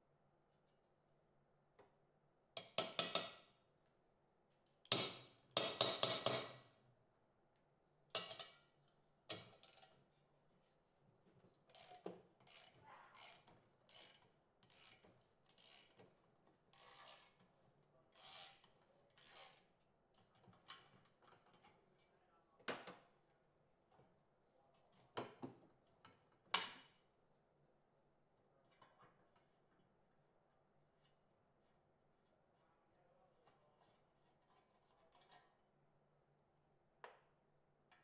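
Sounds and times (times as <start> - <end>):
ratchet wrench strokes: 11.7 - 16.0, 16.7 - 17.4, 18.2 - 19.7.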